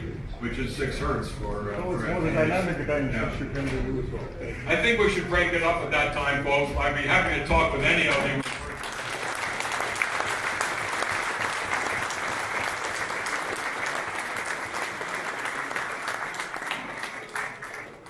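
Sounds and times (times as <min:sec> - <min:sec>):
audience applauding: 0:08.4 - 0:18.0.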